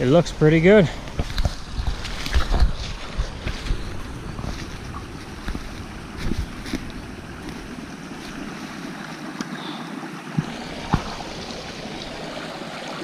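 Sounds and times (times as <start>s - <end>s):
brook rushing over stones: 0.0s - 13.0s
wind rumble on microphone: 1.0s - 8.6s.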